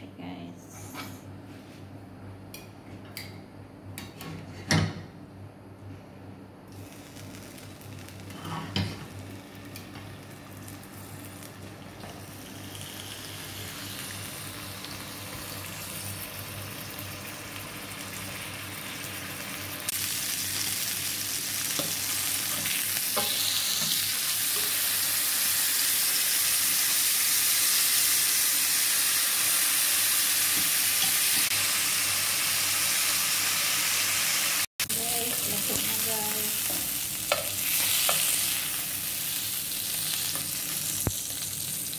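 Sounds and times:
steak sizzling in a pan: 12.4s - 41.9s.

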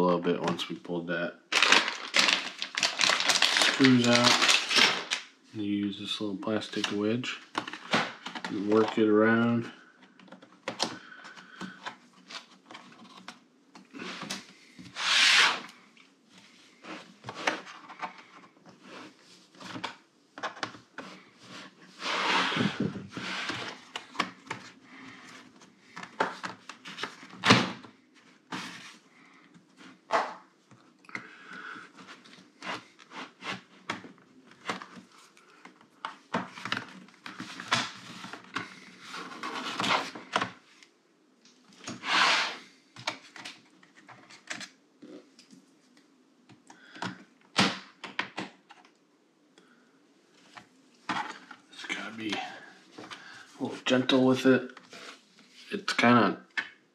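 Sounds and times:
plastic scraping: 1.6s - 5.2s
laptop scraping on desk: 14.9s - 15.7s, 22.0s - 23.8s, 41.9s - 42.6s.

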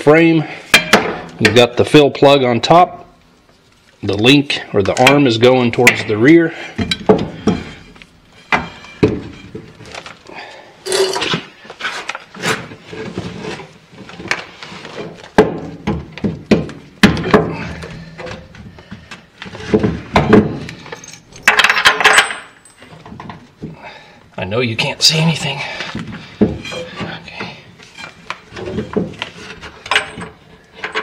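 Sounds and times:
wrench and bolts clinking: 20.7s - 23.0s.

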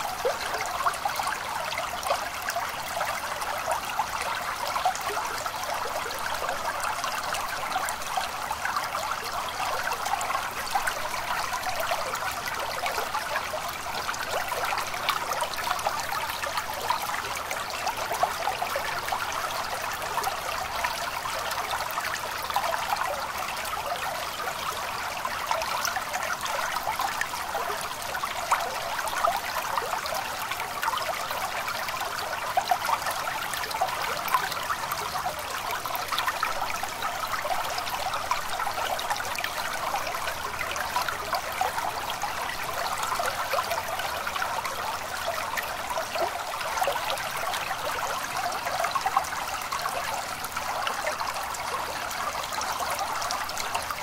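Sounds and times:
water trickling and babbling: 0.0s - 54.0s.

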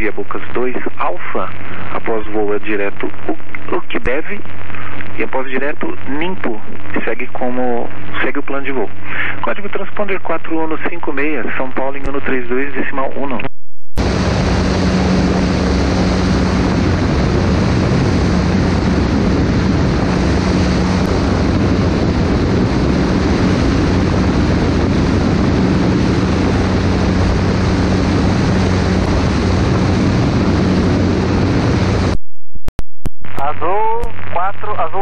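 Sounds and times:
light aircraft engine drone: 14.0s - 32.1s
wind rushing over microphone: 14.0s - 32.2s.

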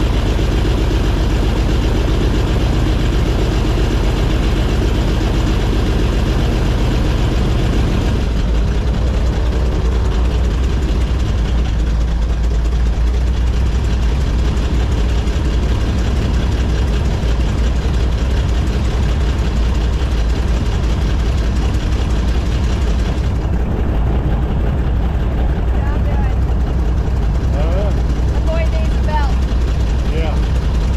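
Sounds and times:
airboat engine and propeller drone: 0.0s - 30.9s.

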